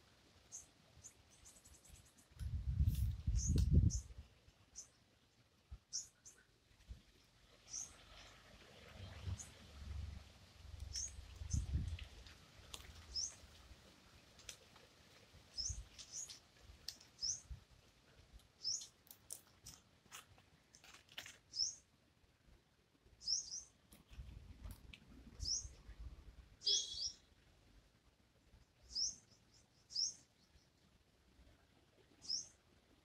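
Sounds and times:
small bird chirping: 0:00.4 - 0:05.1, 0:05.8 - 0:06.6, 0:07.6 - 0:08.4, 0:10.8 - 0:12.0, 0:13.0 - 0:13.4, 0:15.5 - 0:17.6, 0:18.6 - 0:19.5, 0:20.8 - 0:21.9, 0:23.2 - 0:24.3, 0:25.4 - 0:26.0, 0:26.6 - 0:27.4, 0:28.7 - 0:30.8, 0:32.0 - 0:32.6.

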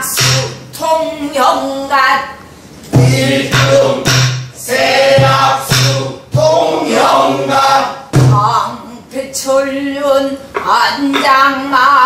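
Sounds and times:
group of voices singing: 0:02.9 - 0:08.1
low barrel drum strokes: 0:03.0 - 0:06.6.

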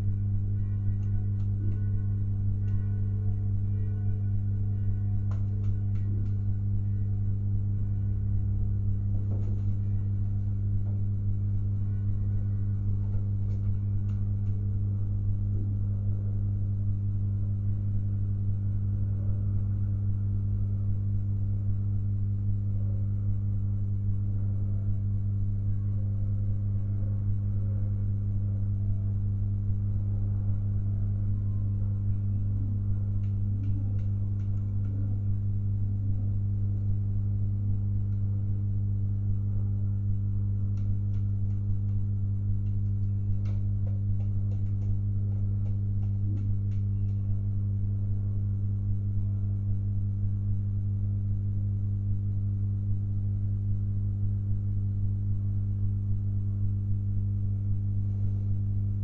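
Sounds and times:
low electrical hum: 0:00.0 - 0:59.0.

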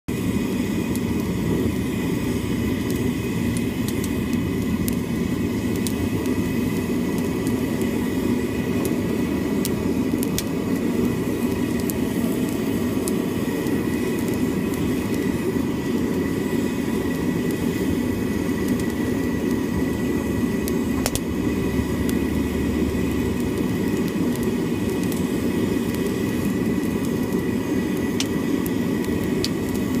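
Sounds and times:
burner flames rushing: 0:00.1 - 0:30.0.

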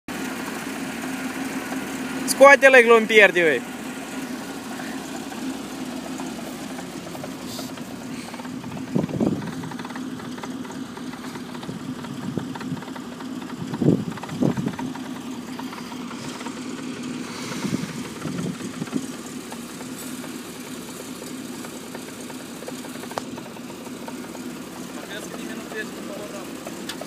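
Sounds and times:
car engine idling: 0:00.1 - 0:27.0
engine revving bursts: 0:00.2 - 0:27.0.

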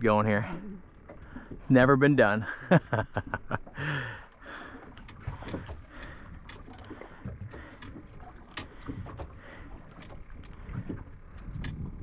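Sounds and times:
wind and water rumble: 0:00.0 - 0:12.0
light clicks and taps: 0:05.0 - 0:11.8.

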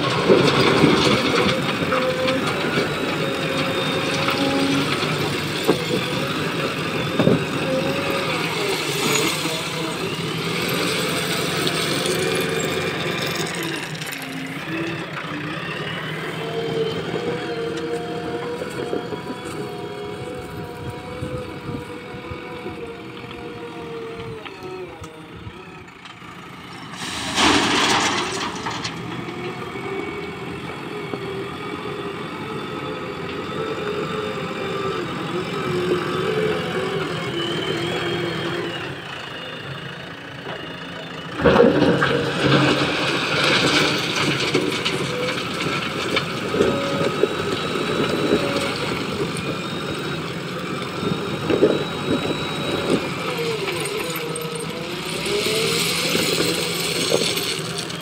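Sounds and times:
diesel engine revving: 0:00.0 - 0:58.0
stones crashing into truck: 0:27.0 - 0:29.1
stones knocking and rattling: 0:55.3 - 0:58.0.

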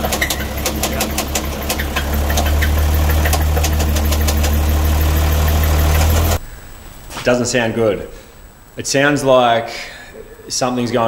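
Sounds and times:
diesel engine running: 0:00.0 - 0:06.4
sharp engine knock: 0:00.0 - 0:06.4.

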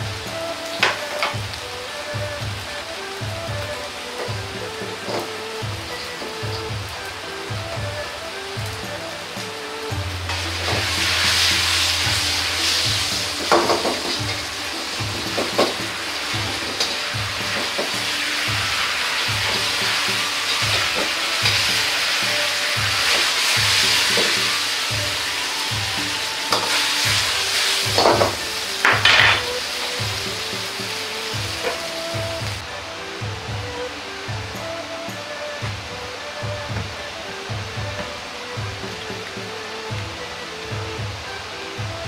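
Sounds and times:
meat sizzling in a wok: 0:03.0 - 0:32.6.

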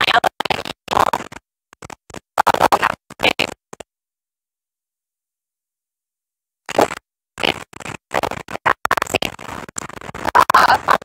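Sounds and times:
woman speaking in broken phrases: 0:00.0 - 0:00.4, 0:10.3 - 0:11.0.

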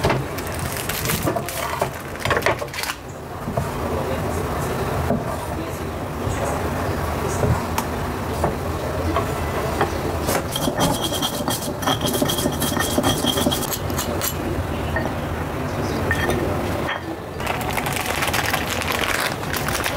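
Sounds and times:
knife on wooden chopping board: 0:10.3 - 0:14.3
metal spoon scraping stone mortar: 0:10.5 - 0:14.4.

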